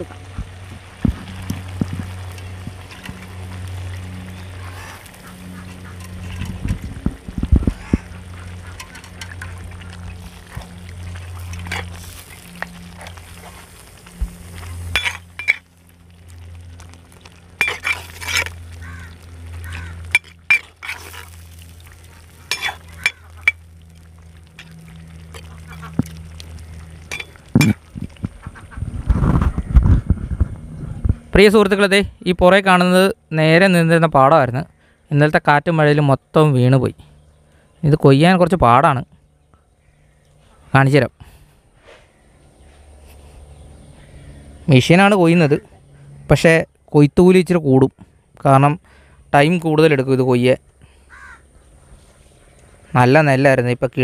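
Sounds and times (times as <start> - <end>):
steady low hum: 0.0 - 54.0
spoon scraping clay pot: 17.6 - 18.6, 20.1 - 21.4, 22.4 - 23.6.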